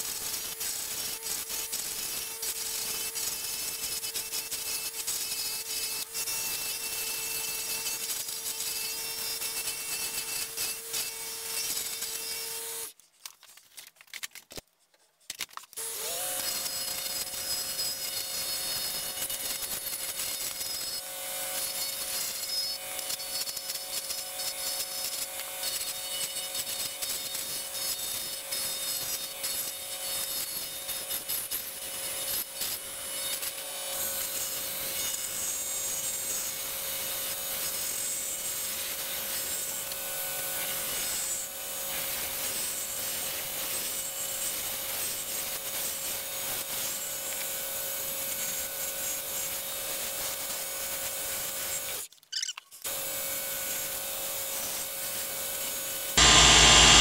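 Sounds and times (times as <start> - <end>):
lathe hum: 56.1 - 57.0.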